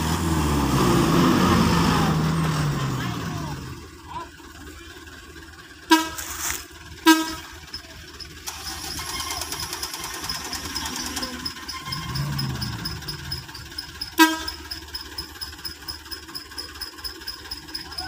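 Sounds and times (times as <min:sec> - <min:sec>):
truck engine running: 0:00.0 - 0:18.0
vehicle horn toots: 0:05.9 - 0:07.6, 0:14.1 - 0:14.7.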